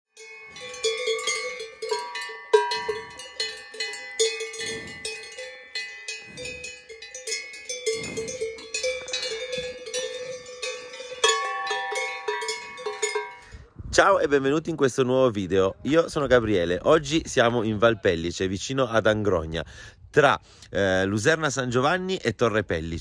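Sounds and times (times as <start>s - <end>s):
cowbell clanking: 0.2s - 13.6s.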